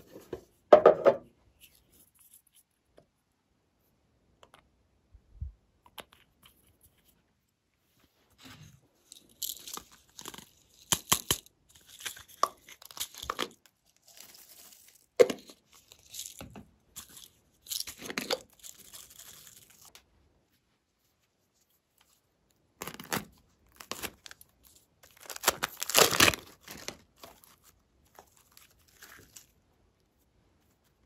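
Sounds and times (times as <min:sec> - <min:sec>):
crinkly rustling: 0:11.6 - 0:31.0.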